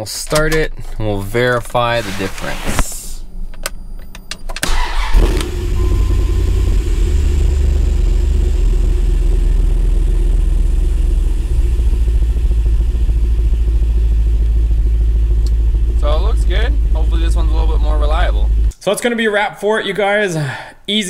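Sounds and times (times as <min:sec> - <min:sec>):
engine idling: 0:04.6 - 0:18.7.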